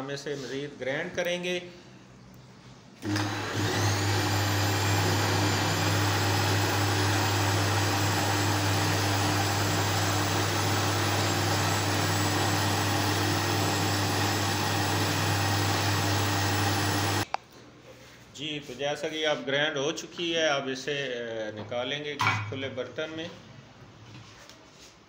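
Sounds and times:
electric grinder whirring: 3.0s - 17.3s.

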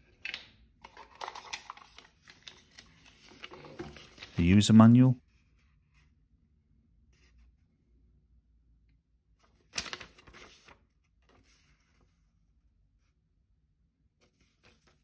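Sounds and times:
paper crackle: 0.8s - 4.4s, 9.5s - 11.8s
paper rustling: 0.8s - 6.1s, 9.4s - 12.4s, 14.2s - 15.0s.

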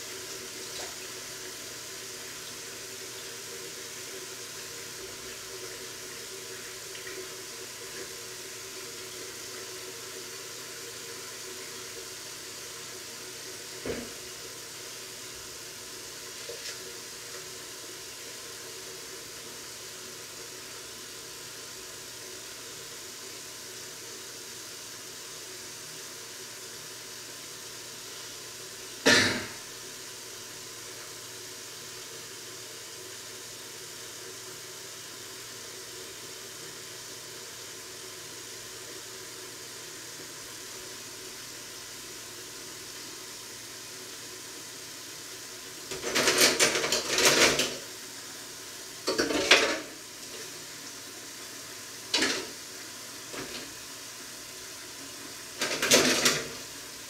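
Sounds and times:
dishes and utensils clattering: 45.9s - 47.8s, 49.1s - 49.9s.

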